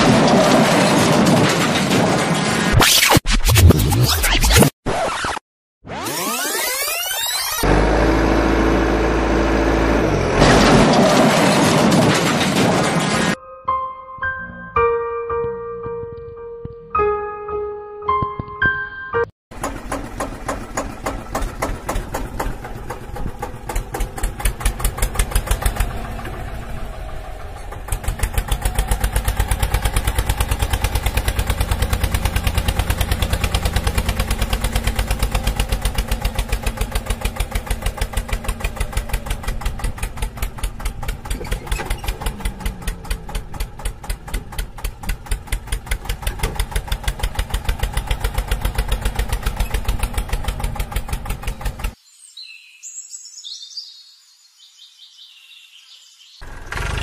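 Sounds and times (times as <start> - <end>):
tractor engine chugging: 19.5 - 52.0.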